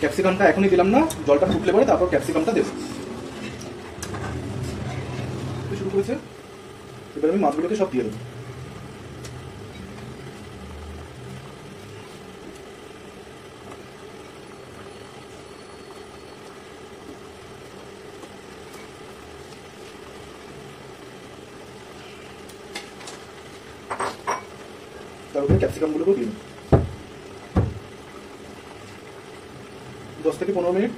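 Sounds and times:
curry bubbling on a gas stove: 0:00.0 - 0:30.9.

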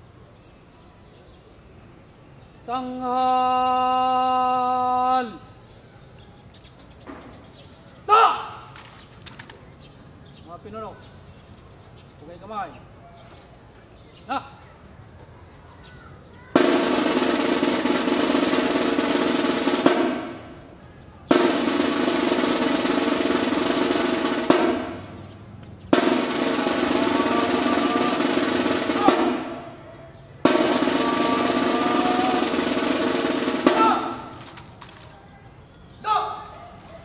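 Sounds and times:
snare drum rolls: 0:16.6 - 0:20.7, 0:21.3 - 0:29.8, 0:30.4 - 0:34.8.

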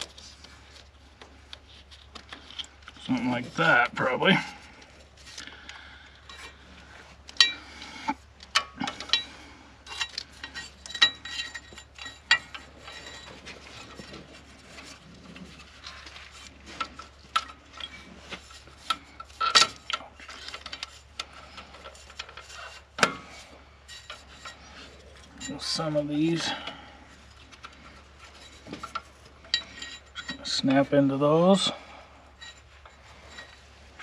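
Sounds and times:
metallic clinks and rubbing: 0:06.2 - 0:30.9, 0:31.7 - 0:34.0.

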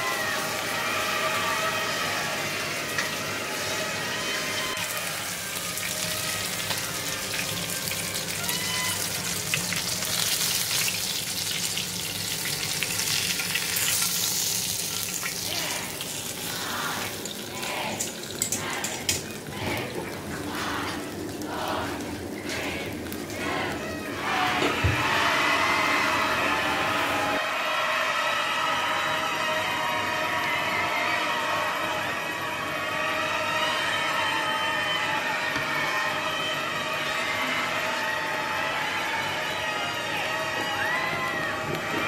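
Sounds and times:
fish frying in hot oil: 0:00.1 - 0:18.5.

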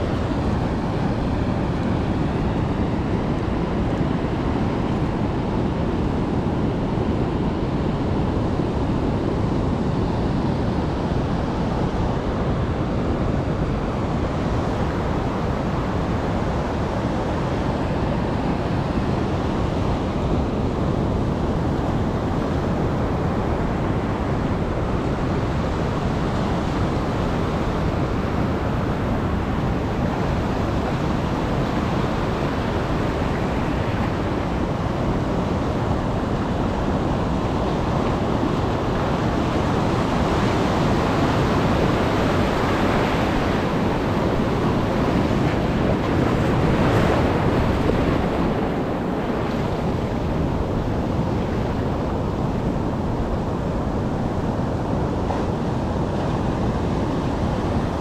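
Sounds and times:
waves breaking on beach: 0:00.0 - 0:58.0
wind buffeting microphone: 0:00.0 - 0:58.0.

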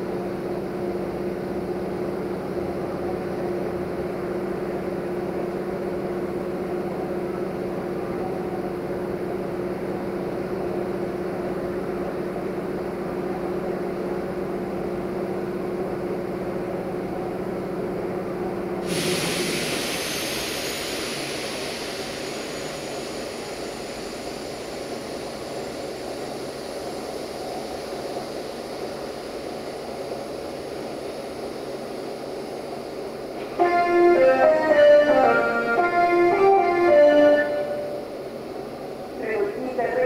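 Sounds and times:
train mechanical hum: 0:00.0 - 0:40.0
loud hiss of released air: 0:18.8 - 0:29.0.

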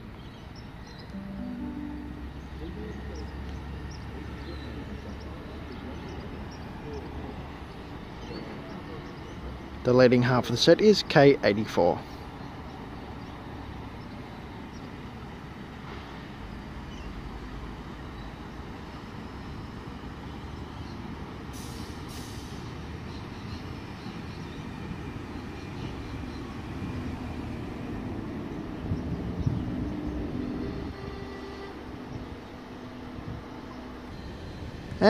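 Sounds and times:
electric train rumbling: 0:00.0 - 0:10.7, 0:12.1 - 0:35.0
short air hisses: 0:21.5 - 0:22.7.

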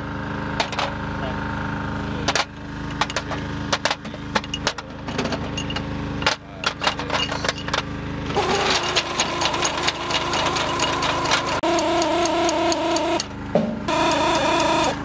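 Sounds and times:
steady machine hum: 0:00.0 - 0:15.0
metal rounds clinking: 0:02.9 - 0:07.8
mechanical rattle: 0:08.4 - 0:13.3.

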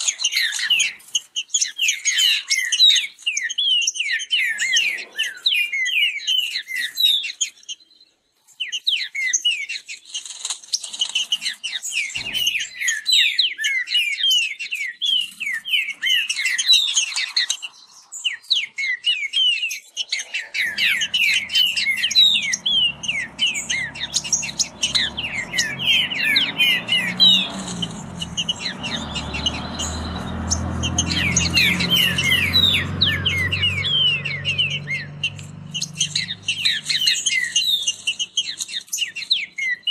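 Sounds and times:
birds singing whistled notes: 0:00.0 - 0:39.9
low rumble: 0:20.5 - 0:37.0.

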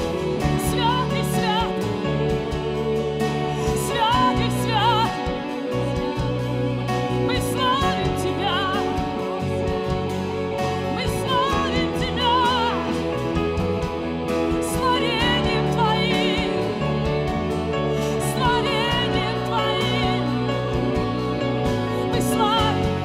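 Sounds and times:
low bass line: 0:00.0 - 0:23.0.

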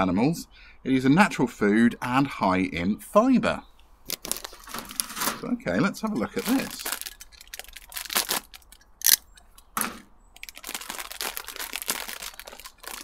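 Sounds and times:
plastic packet ripping: 0:04.1 - 0:05.4, 0:06.2 - 0:09.2, 0:10.4 - 0:13.0
plastic bag crinkling: 0:04.1 - 0:05.5, 0:06.1 - 0:09.4, 0:10.4 - 0:13.0.

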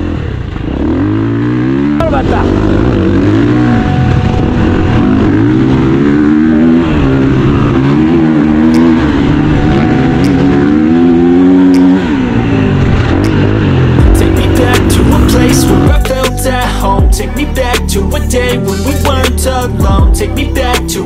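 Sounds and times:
motorcycle engine revving: 0:00.0 - 0:21.0.

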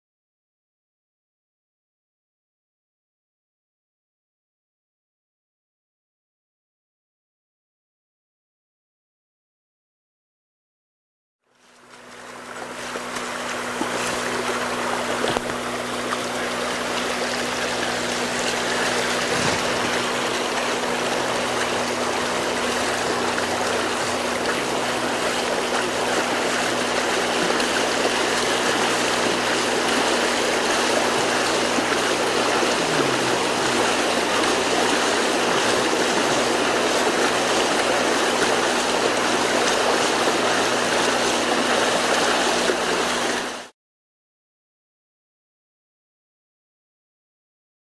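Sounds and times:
steady low hum: 0:11.5 - 0:42.7
water rushing across a road: 0:11.6 - 0:43.7.

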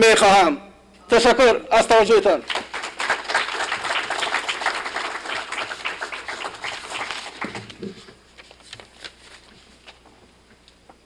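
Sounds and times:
audience applauding: 0:02.4 - 0:07.9.

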